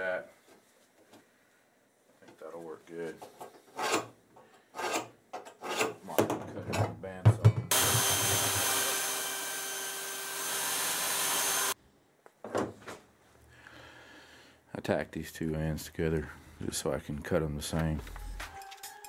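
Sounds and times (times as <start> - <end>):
hand tool scraping steel plate: 3.3 - 6.0
bandsaw cutting steel: 3.8 - 4.1, 4.8 - 6.0, 7.7 - 11.8.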